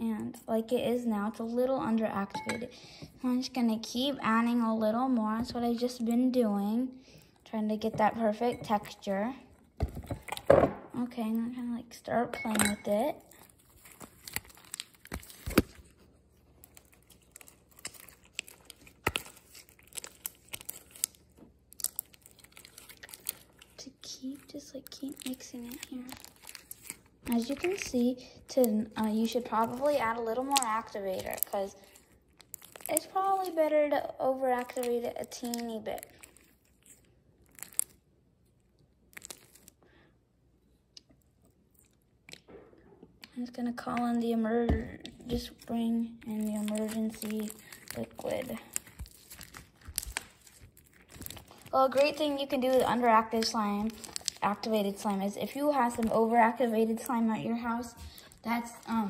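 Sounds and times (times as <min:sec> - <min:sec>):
slime squeezed by hand crackling: 0:13.2 - 0:33.7, 0:34.3 - 0:38.1, 0:39.0 - 0:39.8, 0:45.4 - 0:59.0.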